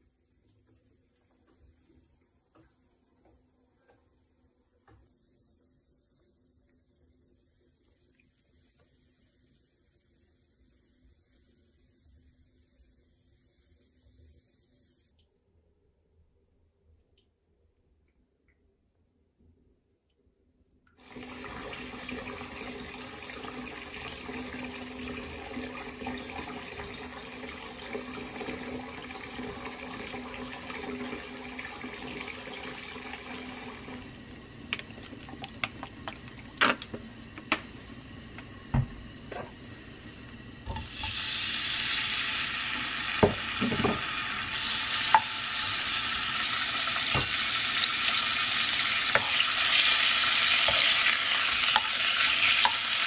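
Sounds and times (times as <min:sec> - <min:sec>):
meat sizzling in hot oil: 0:40.6 - 0:53.0.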